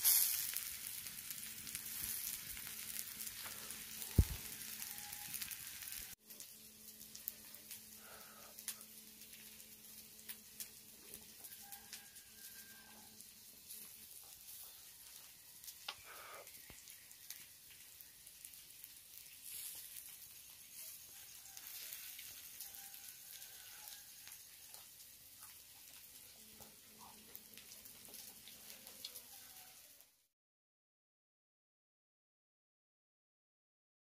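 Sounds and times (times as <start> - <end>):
wood fire crackling: 0.0 - 30.0.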